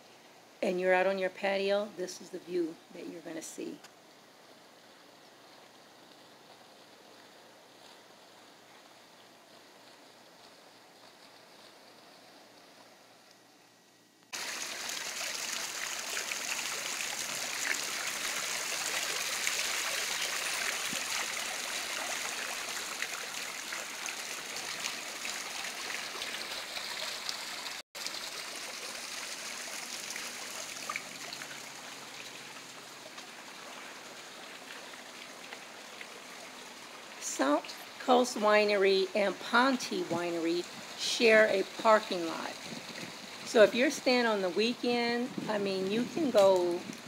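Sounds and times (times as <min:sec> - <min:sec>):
running water splashing: 0:14.3 - 0:47.0.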